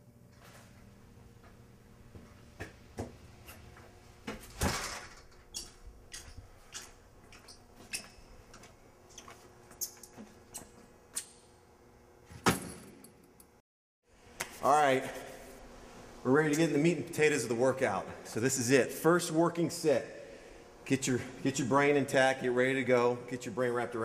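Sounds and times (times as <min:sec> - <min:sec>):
footsteps: 0:00.3 - 0:04.6.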